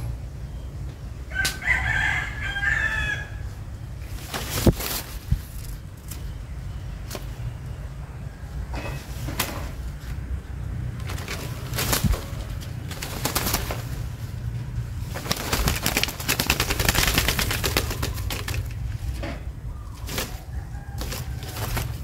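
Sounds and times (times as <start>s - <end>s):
rooster crowing: 1.3s - 3.6s, 19.8s - 22.0s.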